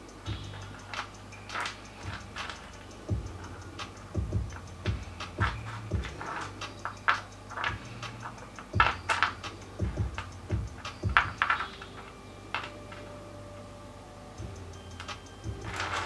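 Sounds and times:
stones clicking together: 0:00.3 - 0:13.1.

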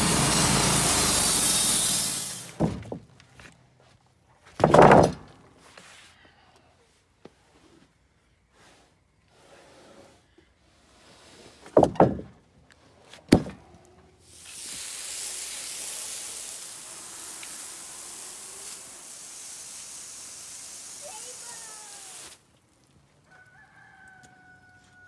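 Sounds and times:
water spray hissing: 0:00.0 - 0:02.6, 0:14.2 - 0:22.8
wooden boards knocking together: 0:02.6 - 0:03.2, 0:04.5 - 0:05.4, 0:11.7 - 0:12.4, 0:13.3 - 0:13.6.

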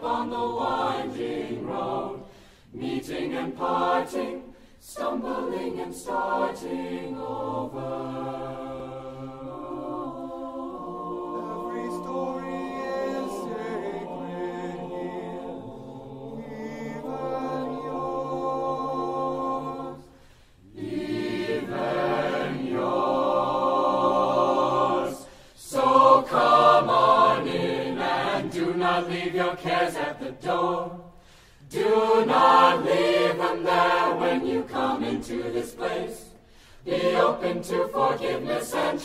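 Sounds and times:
choir singing: 0:00.0 - 0:39.0.

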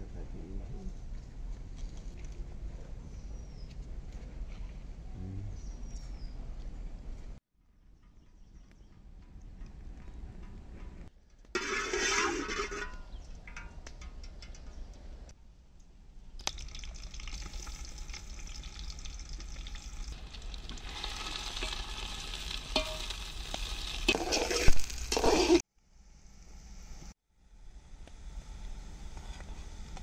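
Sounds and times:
oil sizzling in pot: 0:16.4 - 0:25.6.

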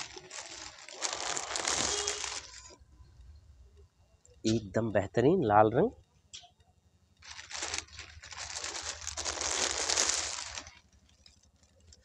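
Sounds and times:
fabric crinkling rustle: 0:00.0 - 0:02.8, 0:07.2 - 0:12.0.

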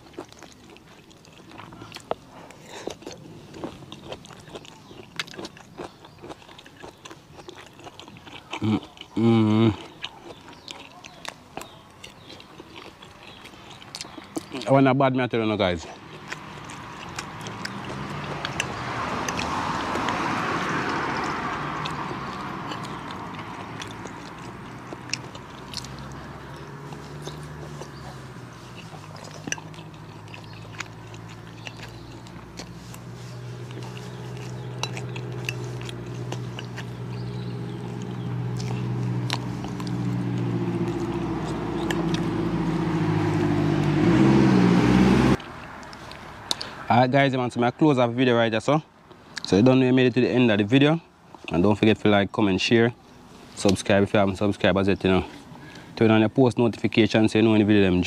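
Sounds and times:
person chewing: 0:00.0 - 0:14.7, 0:15.8 - 0:46.8
vehicle engine hum: 0:15.5 - 0:48.1.

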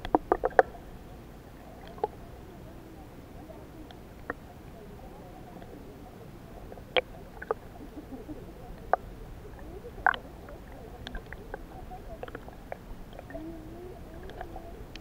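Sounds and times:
sharp underwater clicks and knocks: 0:00.0 - 0:00.8
muffled underwater rumble: 0:00.0 - 0:15.0.

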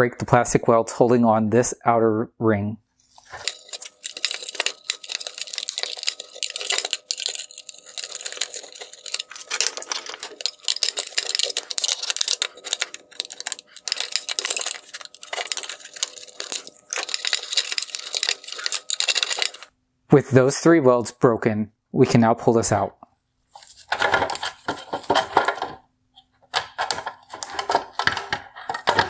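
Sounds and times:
hard plastic cracking and scraping: 0:03.2 - 0:19.7, 0:23.5 - 0:29.0.

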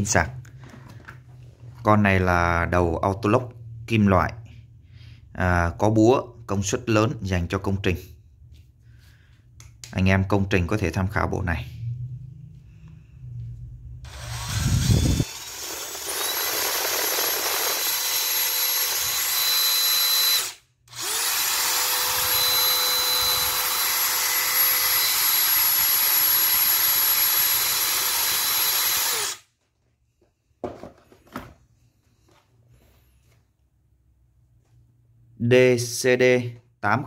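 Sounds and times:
drill motor whine: 0:14.1 - 0:29.4.

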